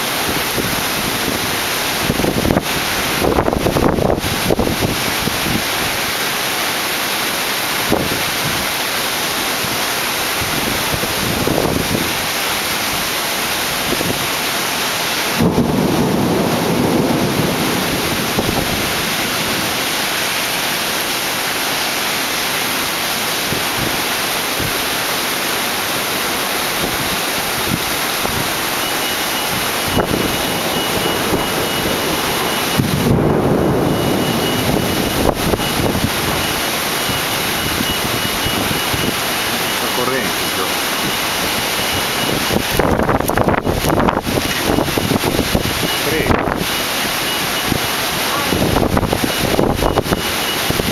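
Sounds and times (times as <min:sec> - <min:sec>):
thunder rumbling: 0:00.0 - 0:06.0, 0:13.7 - 0:22.7, 0:26.6 - 0:50.9
heavy rain pouring: 0:00.0 - 0:50.9.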